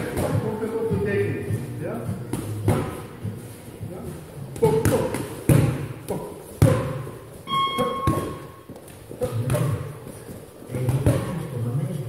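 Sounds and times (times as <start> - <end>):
boxing gloves thudding: 1.5 - 3.4, 4.6 - 7.2
brief ringing tone: 7.5 - 8.6.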